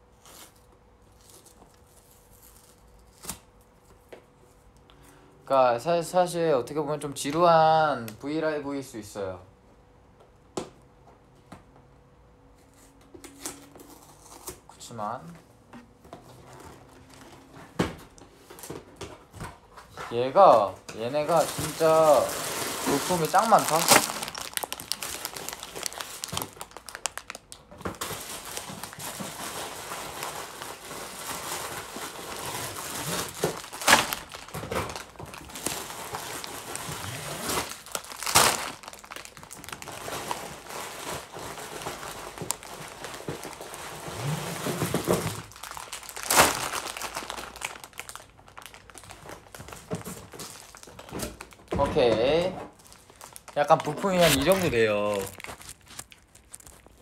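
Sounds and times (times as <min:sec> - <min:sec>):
plastic bags crinkling: 0:20.1 - 0:57.0.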